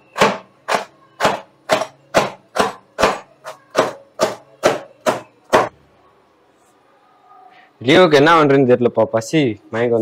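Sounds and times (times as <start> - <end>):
knife chopping on wooden board: 0.1 - 5.7.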